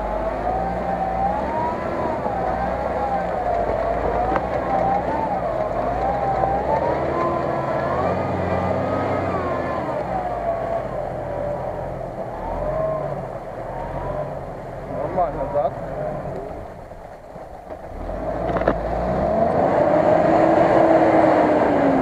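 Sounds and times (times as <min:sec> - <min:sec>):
engine pulling through mud: 0:00.0 - 0:22.0.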